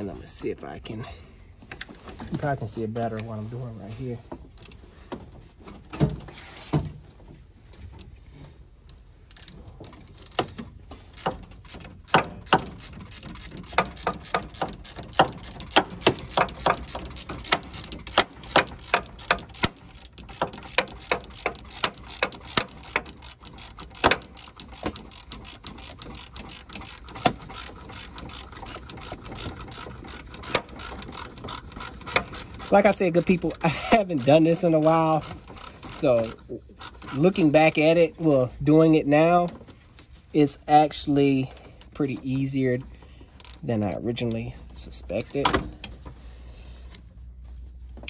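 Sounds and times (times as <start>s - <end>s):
hand ratchet clicking: 9.3s - 38.5s, 41.3s - 44.4s.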